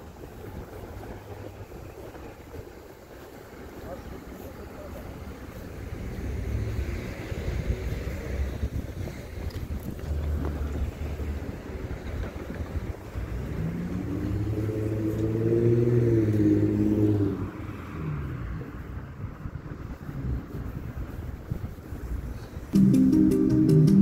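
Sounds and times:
traffic rumble: 0.0s - 24.0s
wind: 0.0s - 24.0s
vehicle engine passing: 5.5s - 9.2s, 10.0s - 21.0s.

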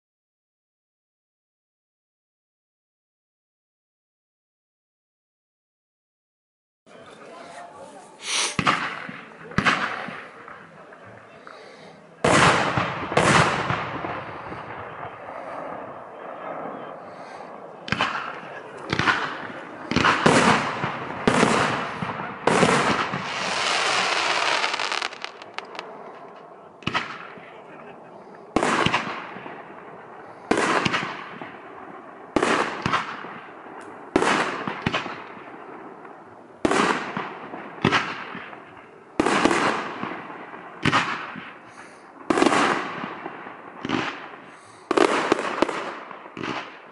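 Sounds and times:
fireworks bursting with bangs: 8.2s - 15.4s, 17.1s - 27.6s, 28.5s - 46.9s.

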